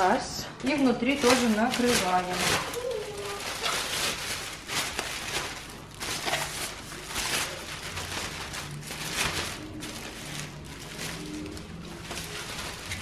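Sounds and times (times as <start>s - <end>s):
plastic bag rustling and crinkling: 0.7s - 13.0s.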